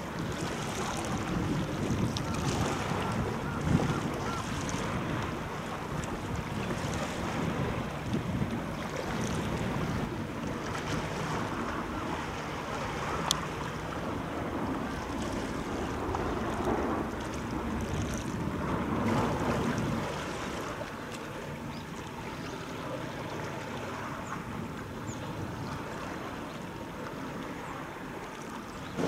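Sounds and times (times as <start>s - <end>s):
wind gusting over microphone: 0.0s - 20.8s, 28.8s - 29.0s
choppy sea water: 0.0s - 29.0s.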